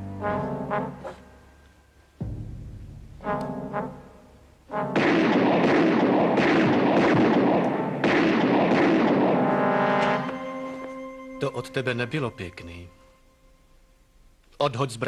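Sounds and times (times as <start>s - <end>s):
dramatic music: 2.2s - 13.5s
rapid gunfire bursts: 5.0s - 9.6s.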